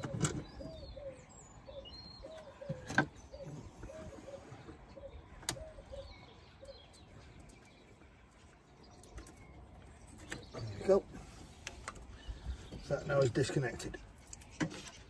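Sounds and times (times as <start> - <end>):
pigeon cooing: 0.0 - 6.8.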